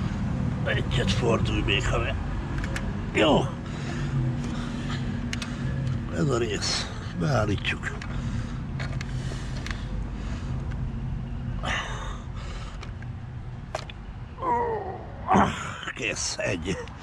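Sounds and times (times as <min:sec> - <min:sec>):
steady low hum: 0:00.0 - 0:17.0
person grunting: 0:14.4 - 0:15.8.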